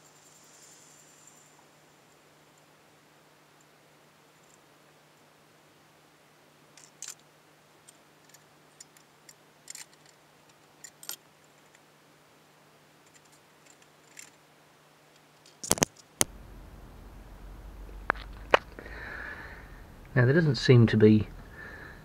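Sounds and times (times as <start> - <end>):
metal engine parts clicking: 7.8 - 11.8.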